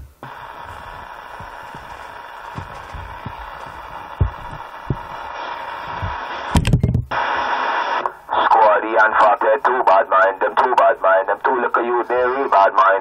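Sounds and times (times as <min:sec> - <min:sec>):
soft low thumps: 0:00.0 - 0:07.2
radio static hiss: 0:00.0 - 0:13.0.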